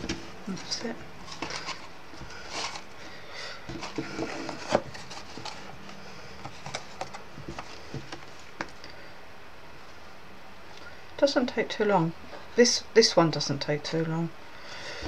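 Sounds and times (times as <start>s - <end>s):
card rustling: 0.0s - 8.9s.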